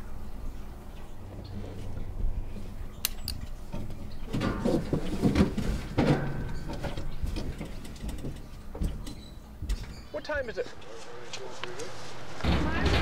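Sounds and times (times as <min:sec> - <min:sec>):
wooden ladder knocking and creaking: 0:03.4 - 0:10.4.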